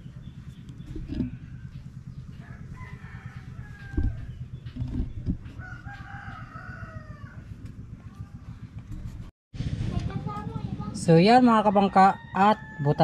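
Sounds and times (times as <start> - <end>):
low rumble: 0.0 - 11.7
rooster crowing: 2.3 - 4.4, 5.5 - 7.6, 11.6 - 13.0.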